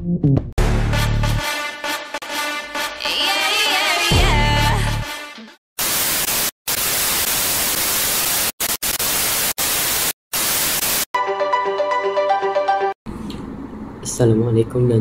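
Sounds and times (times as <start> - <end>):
synth melody: 0.6 - 4.4, 11.2 - 13.0
static hiss glitch: 5.8 - 11.1.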